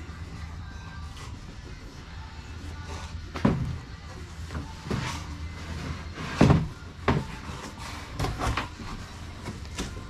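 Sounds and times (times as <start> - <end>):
wooden boards knocking and thudding: 6.3 - 7.4.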